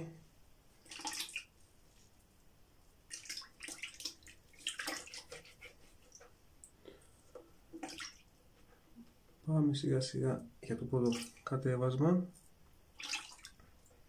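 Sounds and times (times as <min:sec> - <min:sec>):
water splashing: 0:00.8 - 0:01.6, 0:03.0 - 0:06.3, 0:07.7 - 0:08.4, 0:10.8 - 0:11.6, 0:12.9 - 0:13.6.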